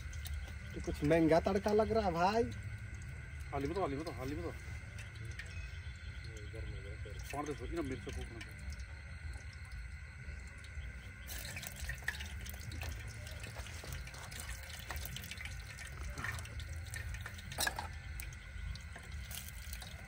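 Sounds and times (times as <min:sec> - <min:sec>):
low steady hum: 0:00.0 - 0:20.0
spices sizzling in hot oil: 0:07.3 - 0:20.0.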